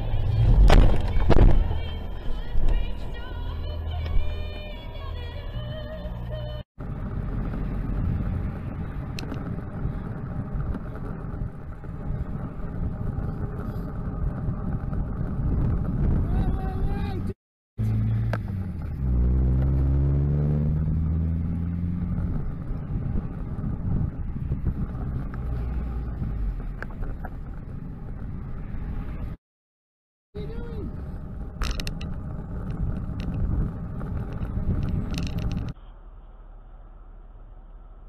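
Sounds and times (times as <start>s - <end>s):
road and wind noise: 0.0s - 29.4s, 30.4s - 38.0s
van engine revving past: 17.8s - 26.3s.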